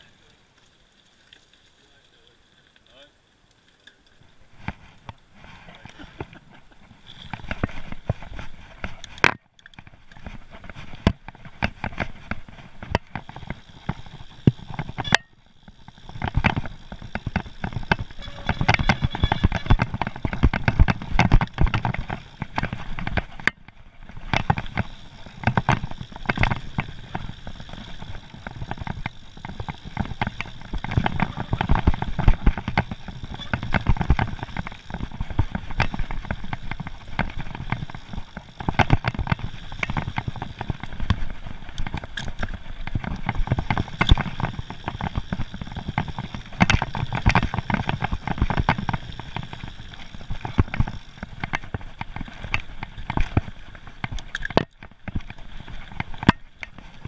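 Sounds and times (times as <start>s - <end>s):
bike tyres crunching over stones: 0.0s - 57.0s
chain and frame rattling: 11.8s - 23.4s, 24.1s - 41.1s.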